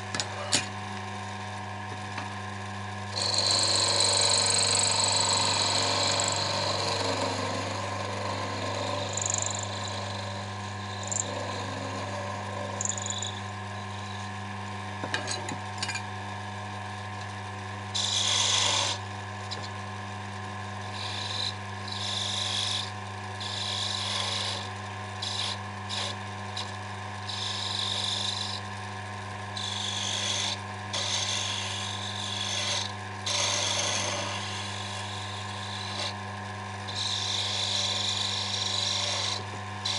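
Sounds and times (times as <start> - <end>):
lathe motor hum: 1.4 - 14.8, 16.3 - 39.9
chisel scraping wood: 21.0 - 26.7, 29.6 - 36.2, 36.9 - 39.9.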